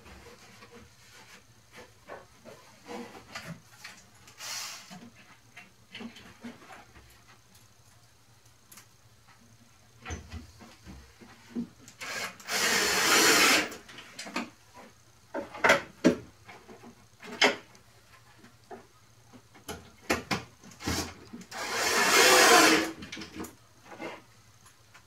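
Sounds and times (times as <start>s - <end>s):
cordless drill driving screws: 12.0s - 13.8s, 20.9s - 22.9s.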